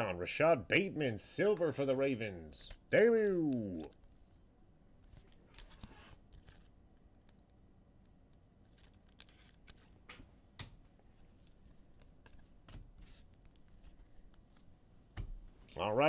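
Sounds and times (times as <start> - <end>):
trading card wrappers crinkling: 8.6 - 10.1.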